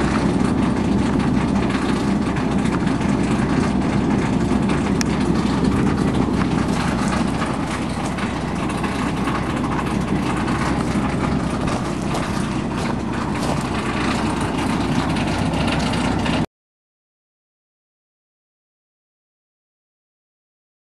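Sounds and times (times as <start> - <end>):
gas wellhead rumble and hiss: 0.0 - 16.4.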